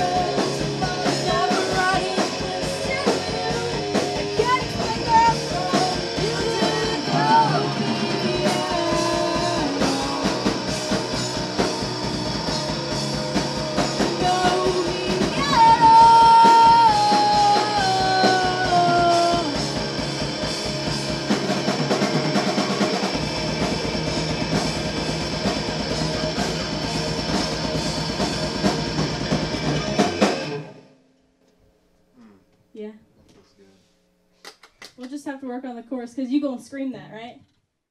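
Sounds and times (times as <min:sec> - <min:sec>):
person singing: 0:00.0 - 0:10.9, 0:14.0 - 0:19.7
rock band playing: 0:00.0 - 0:30.9.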